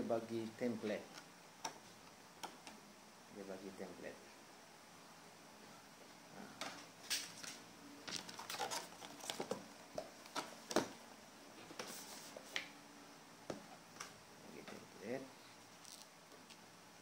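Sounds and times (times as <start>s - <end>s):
cardboard and paper rustling: 8.1s - 9.6s.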